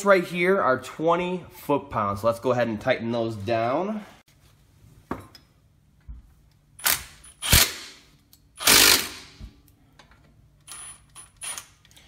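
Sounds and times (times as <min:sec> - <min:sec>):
power tool driving bolts: 0:06.8 - 0:08.0, 0:08.6 - 0:09.4.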